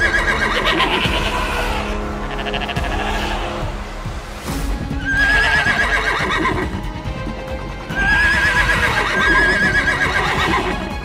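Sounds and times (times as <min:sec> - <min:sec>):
horse neighing: 0:00.0 - 0:03.6, 0:05.0 - 0:06.8, 0:07.9 - 0:10.9
background music: 0:00.0 - 0:11.0.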